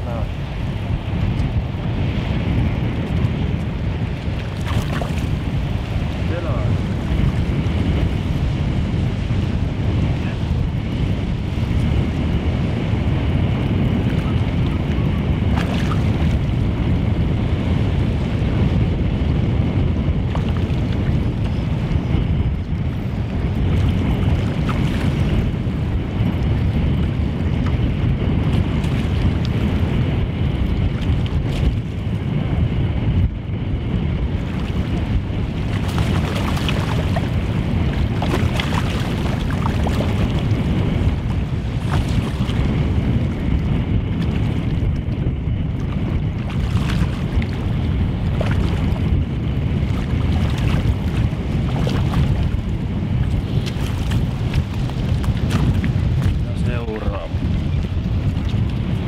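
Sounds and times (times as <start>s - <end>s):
wind buffeting microphone: 0.0s - 59.0s
water lapping on pebble shore: 35.6s - 37.4s.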